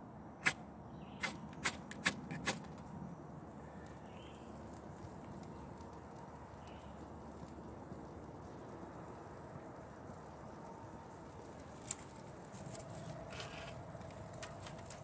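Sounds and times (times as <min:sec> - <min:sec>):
faint outdoor background: 0:00.0 - 0:15.0
sharp wooden clicks: 0:01.2 - 0:02.9.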